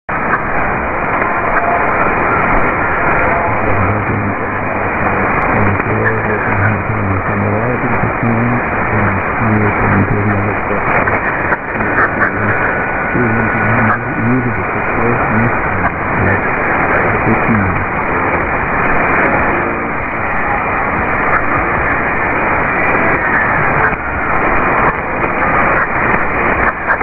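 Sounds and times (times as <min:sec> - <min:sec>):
radio hiss and static: 0:00.1 - 0:27.0
faint radio voice: 0:03.0 - 0:18.4, 0:19.5 - 0:20.6.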